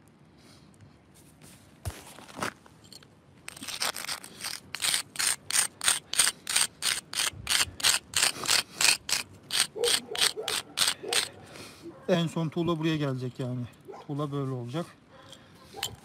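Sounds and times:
brick scraping on stone: 3.5 - 11.4.

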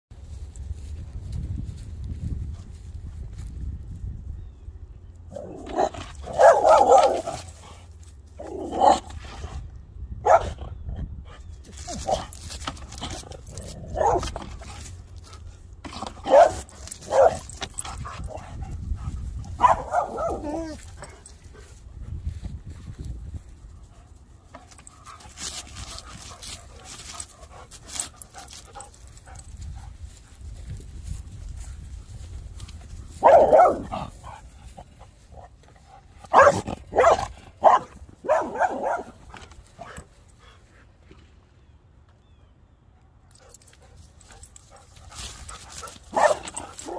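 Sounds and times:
dog barking: 5.8 - 7.4, 10.2 - 10.6, 14.0 - 14.3, 16.2 - 17.4, 19.6 - 20.8, 33.2 - 34.0, 36.3 - 39.2, 46.1 - 46.9.

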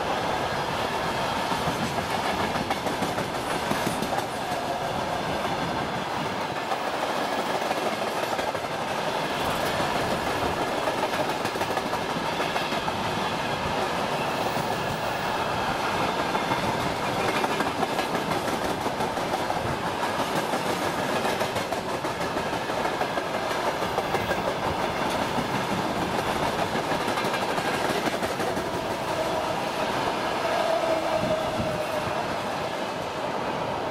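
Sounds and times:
freight train rumbling past: 0.0 - 33.9
wheels clacking over rail joints: 16.0 - 29.4.

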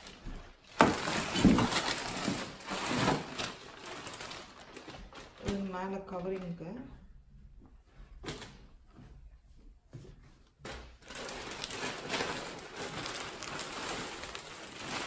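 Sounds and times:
plastic packaging crinkling: 0.0 - 6.7, 10.6 - 15.0.

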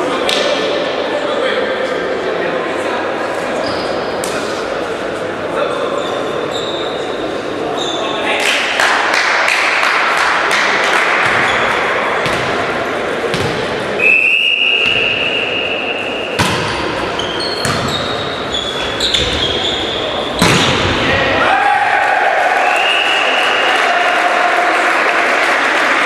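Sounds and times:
players' voices echoing: 0.0 - 26.0
shoes squeaking on court floor: 3.6 - 4.1, 6.0 - 8.2, 16.0 - 20.7
referee's whistle blowing: 14.0 - 16.4, 22.6 - 23.7
volleyball being struck: 16.4 - 17.0, 20.4 - 21.0.

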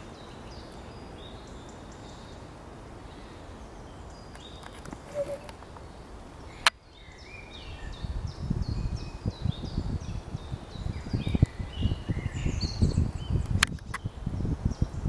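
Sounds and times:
small birds chirping: 0.0 - 15.0
sharp click: 13.4 - 14.0.

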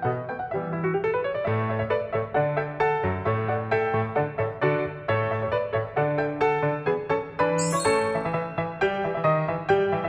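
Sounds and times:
keyboard playing short notes: 7.6 - 8.3.

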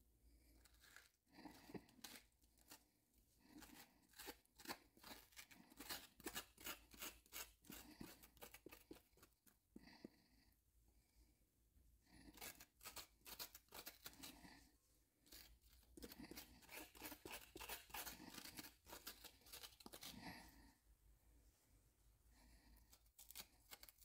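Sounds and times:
metal spoon scraping squash: 0.6 - 2.8, 3.5 - 9.4, 12.3 - 14.5, 15.2 - 20.6, 22.9 - 24.0.

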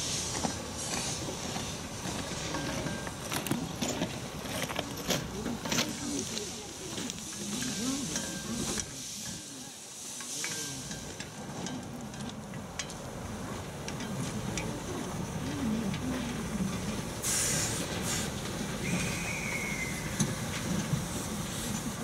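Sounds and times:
steam hiss: 0.0 - 2.4, 5.2 - 11.6, 16.2 - 22.0
wheels clicking on rails: 0.0 - 22.0
short high squeal: 18.8 - 20.2.

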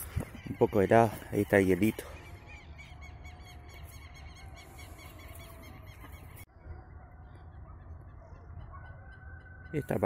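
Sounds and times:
birds honking calls: 0.0 - 10.0.

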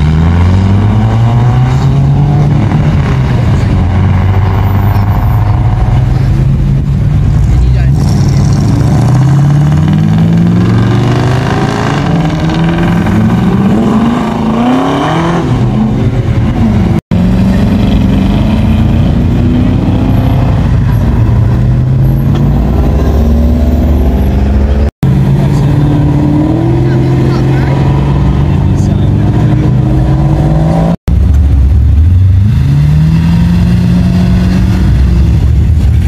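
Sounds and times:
car engines revving and accelerating: 0.0 - 36.0.

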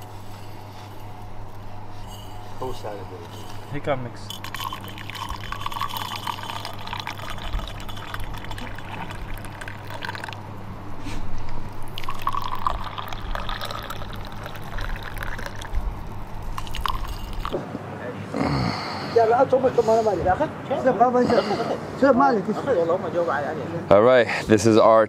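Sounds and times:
tea pouring into glass cups: 2.1 - 10.5, 11.7 - 17.6.

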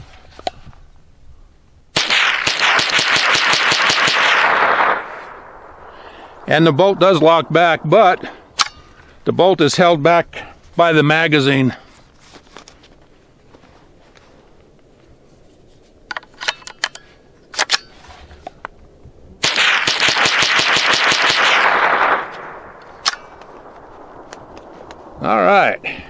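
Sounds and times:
rapid rifle shots: 2.0 - 8.4, 19.4 - 24.3
rifle handling clicks: 16.1 - 18.8, 22.3 - 25.0.

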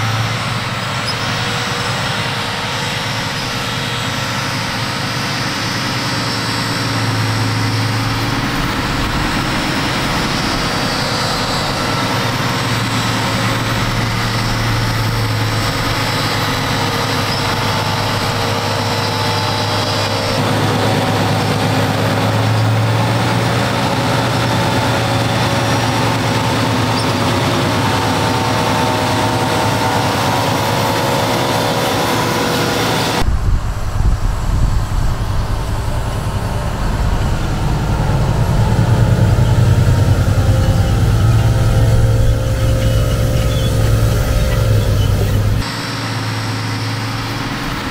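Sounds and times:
tractor engine running under load: 0.0 - 47.9.

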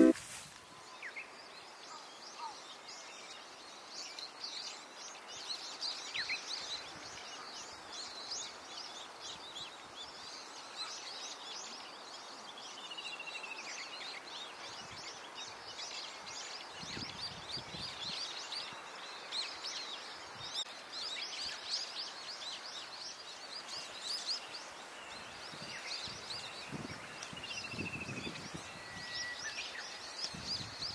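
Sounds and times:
falling whistled notes: 0.0 - 0.2
faint outdoor hiss: 0.0 - 30.9
songbirds chirping and singing: 1.0 - 30.9.

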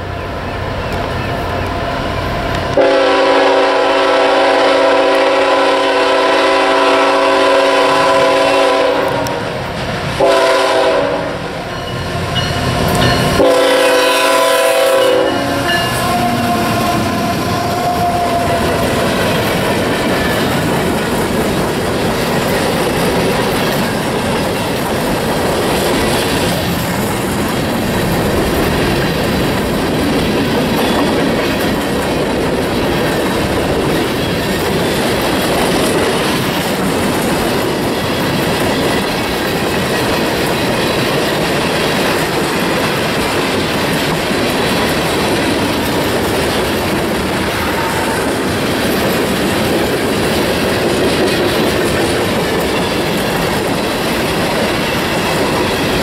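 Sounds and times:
train rumbling past: 0.0 - 56.0
train wheels clacking on rails: 0.0 - 56.0
train horn chord: 2.7 - 9.5, 10.2 - 11.5, 13.0 - 18.8, 47.6 - 48.4.

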